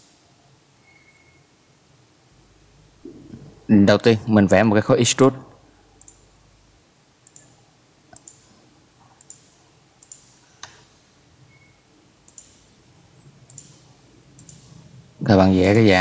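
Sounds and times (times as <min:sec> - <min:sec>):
low background hiss: 0:00.0 - 0:16.0
computer mouse button clicks: 0:12.3 - 0:12.6, 0:14.4 - 0:14.7.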